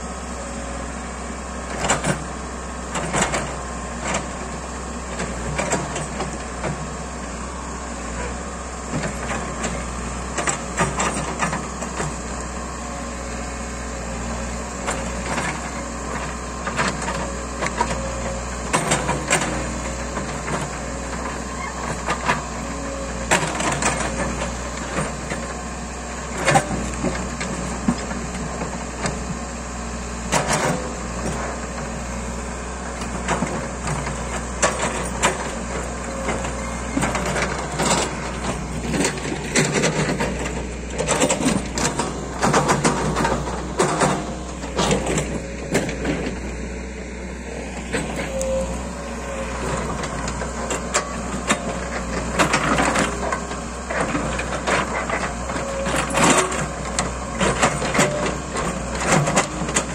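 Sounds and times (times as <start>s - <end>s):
diesel engine running: 0.0s - 59.9s
knocks and clanks of stones: 33.0s - 46.4s.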